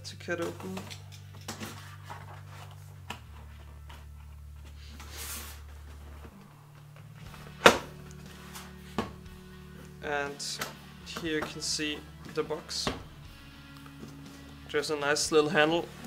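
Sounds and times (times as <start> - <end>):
cardboard scraping rustle: 1.4 - 6.4.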